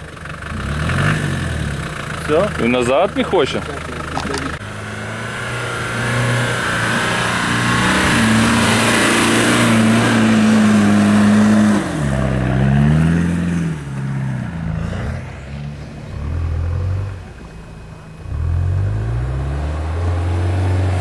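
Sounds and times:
car engine revving hard: 0.5s - 2.6s, 4.5s - 15.5s, 18.2s - 21.0s.

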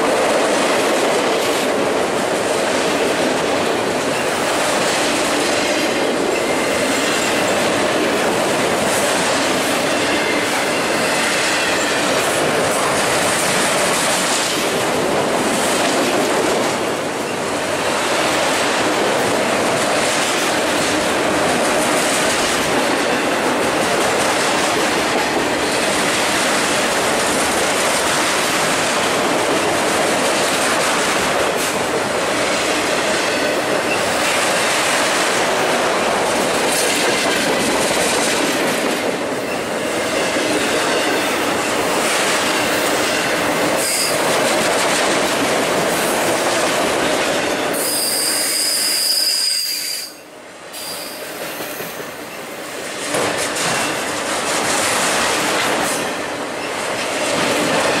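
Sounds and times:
train wheels rumbling on rails: 0.0s - 58.0s
high wheel squeal: 47.8s - 50.2s.

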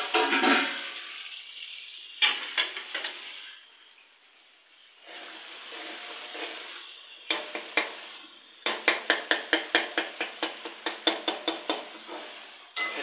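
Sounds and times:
kitchen utensil rapid knocks: 8.6s - 11.9s.

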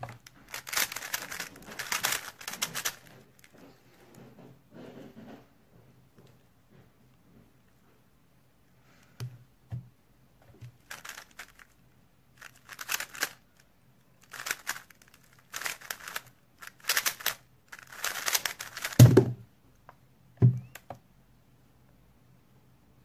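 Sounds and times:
puzzle cube clicking: 14.3s - 19.1s.

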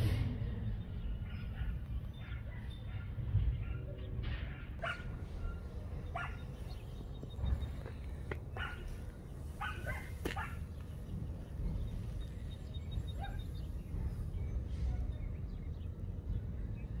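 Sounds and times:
steady low rumble: 0.0s - 17.0s
dog barking and yipping: 1.2s - 6.5s, 8.5s - 9.0s, 9.6s - 10.7s, 13.2s - 13.4s.

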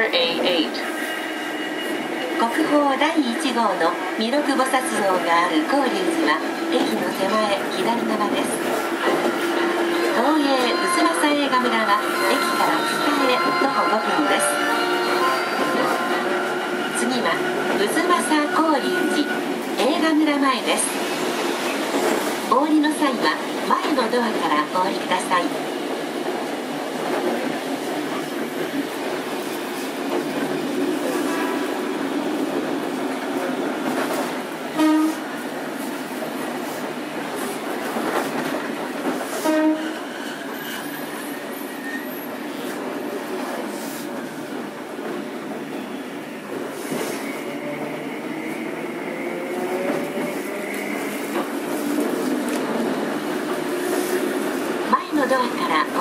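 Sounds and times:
tram wheels running on rails: 0.0s - 56.0s
tram horn toot: 0.7s - 2.8s, 8.5s - 19.8s, 34.6s - 35.4s, 39.3s - 40.3s.

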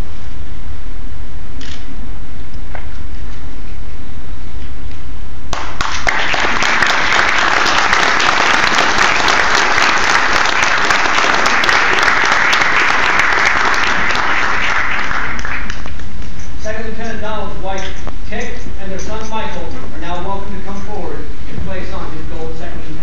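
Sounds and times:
audience applauding: 5.5s - 16.2s.

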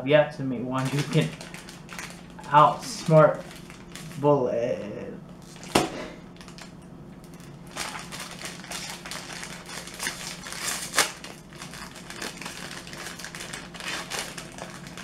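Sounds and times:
wrapper crinkling: 0.8s - 4.2s, 5.4s - 15.0s.

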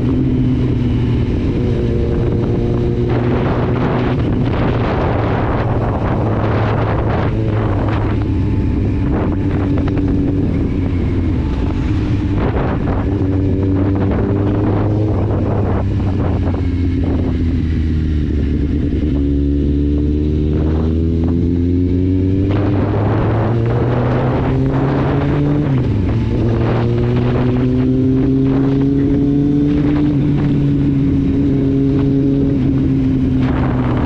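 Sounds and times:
motorcycle engine cruising: 0.0s - 34.0s
wind on microphone: 0.0s - 34.0s.

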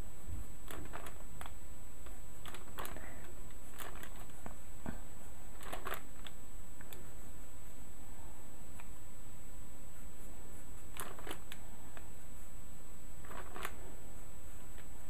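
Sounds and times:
steady low hum: 0.0s - 15.0s
pencil scratching on paper: 9.8s - 15.0s.

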